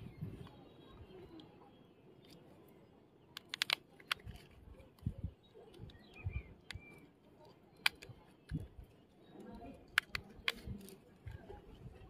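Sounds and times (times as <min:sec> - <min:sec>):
electric screwdriver plastic clicks: 0:03.4 - 0:04.6.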